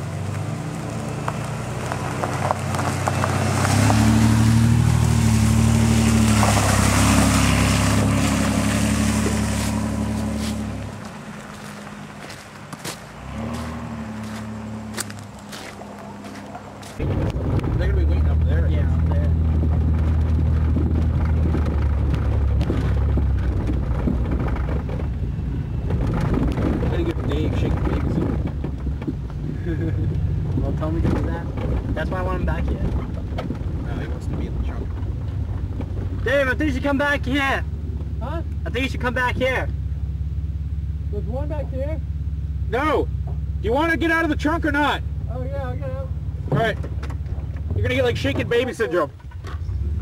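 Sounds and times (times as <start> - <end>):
tyres crunching on gravel: 0.0 - 40.2
car engine hum: 0.0 - 50.0
faint knocks and rattles: 18.4 - 36.3.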